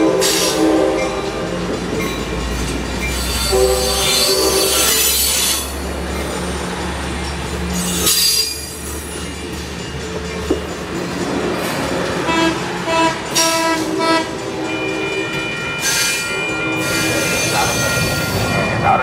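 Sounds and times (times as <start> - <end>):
train wheels clattering on rails: 0.0 - 19.0
wheels squealing high-pitched: 7.7 - 9.1.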